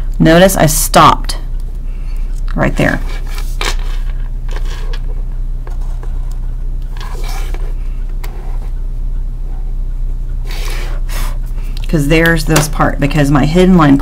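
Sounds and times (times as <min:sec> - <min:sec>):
low hum: 0:00.0 - 0:14.0
pencil scratching on paper: 0:06.9 - 0:08.8.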